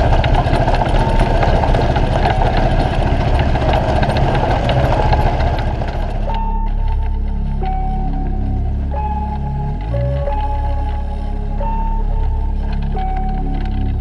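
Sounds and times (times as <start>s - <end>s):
rattle on gravel: 0.0s - 7.4s
buggy engine running: 0.0s - 14.0s
music: 4.2s - 14.0s.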